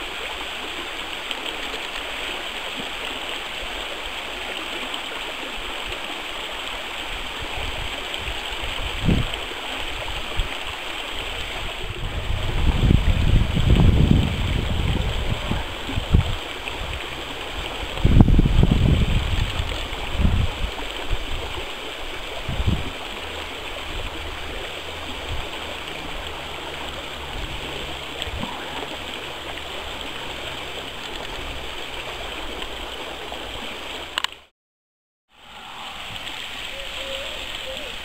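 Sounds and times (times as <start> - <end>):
stream water rushing: 0.0 - 34.5, 35.3 - 38.0
wind on microphone: 7.1 - 33.7.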